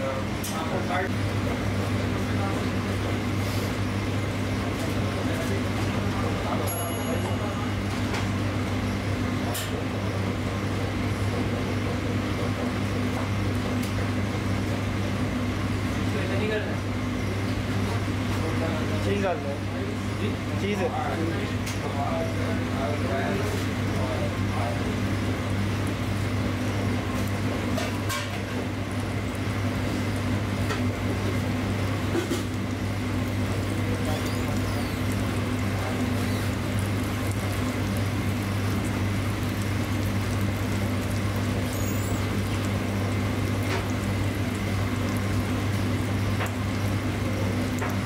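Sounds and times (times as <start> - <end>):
kitchen equipment humming: 0.0 - 48.0
gas burners hissing: 15.7 - 48.0.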